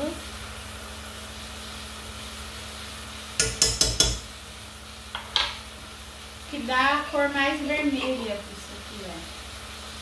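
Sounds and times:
steak sizzling in a pan: 0:00.0 - 0:10.0
metal spoon tapping a pan: 0:03.4 - 0:04.3.

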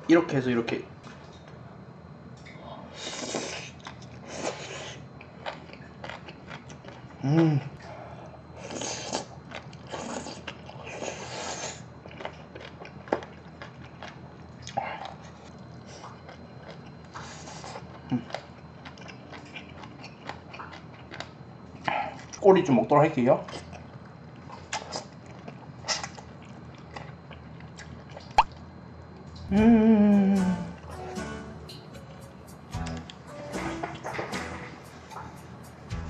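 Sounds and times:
man chewing wetly: 0:03.1 - 0:07.2, 0:08.6 - 0:22.4, 0:23.4 - 0:28.7
man humming: 0:07.2 - 0:07.8, 0:29.5 - 0:31.8.

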